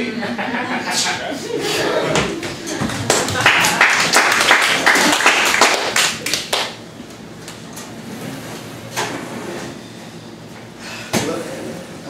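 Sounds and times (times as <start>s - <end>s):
audience clapping: 2.8s - 6.8s.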